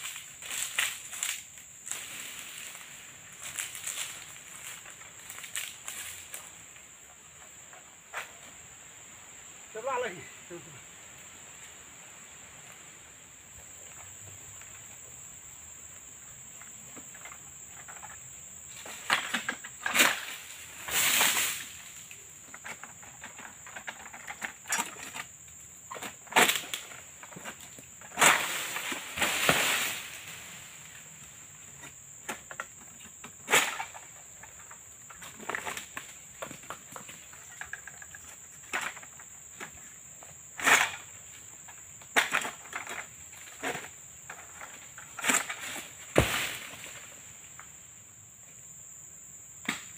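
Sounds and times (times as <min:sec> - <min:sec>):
high insect drone: 0:00.0 - 0:49.9.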